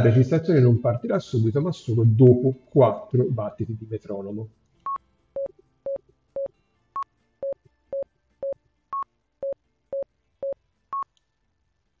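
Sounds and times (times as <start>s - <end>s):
metronome beeps: 5.9s - 6.5s.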